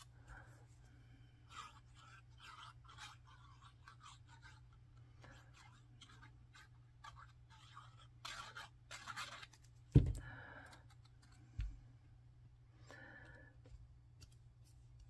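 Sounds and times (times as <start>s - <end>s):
dull thump: 9.9s - 10.2s.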